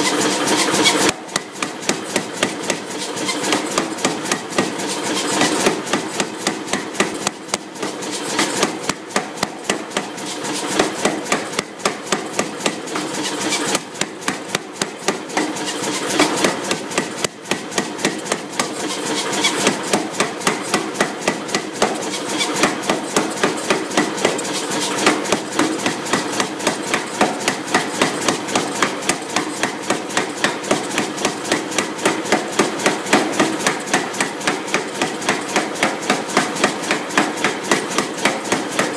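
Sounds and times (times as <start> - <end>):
steady machine noise: 0.0 - 38.9
power hammer striking hot steel: 0.4 - 38.9.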